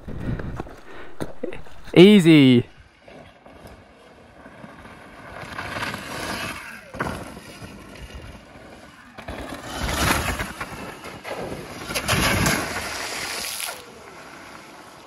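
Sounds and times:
bike wheels splashing through water: 3.5 - 15.0.

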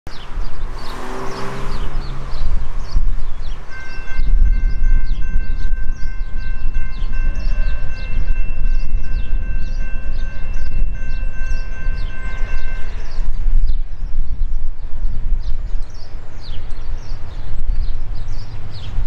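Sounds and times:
steady low rumble: 1.7 - 19.0
distant locomotive air horn: 3.7 - 13.2.

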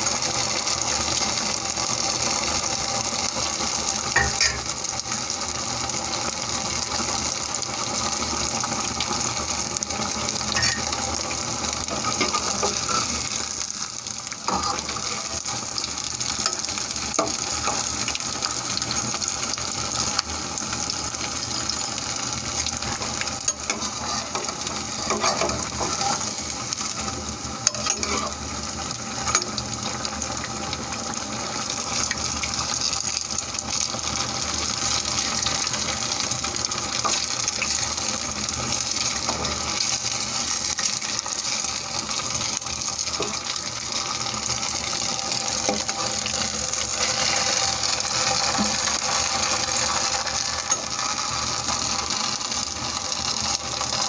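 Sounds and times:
fritters deep-frying in oil: 0.0 - 54.0.

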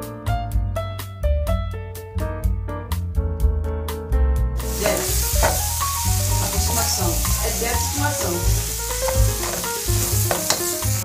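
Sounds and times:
food sizzling in a frying pan: 4.6 - 11.0
spatula stirring in a pan: 4.7 - 11.0.

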